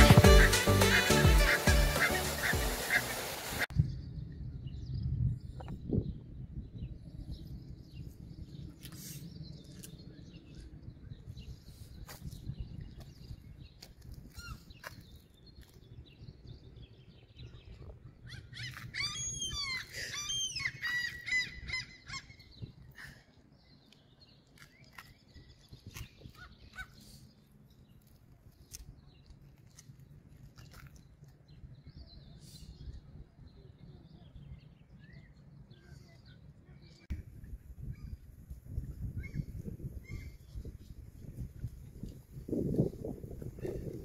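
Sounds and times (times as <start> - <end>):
gulls calling: 0.0 - 3.7.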